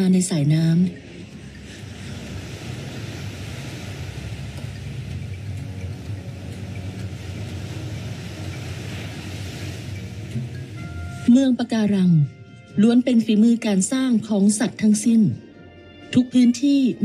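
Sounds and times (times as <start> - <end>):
sea surf breaking: 1.0 - 11.6.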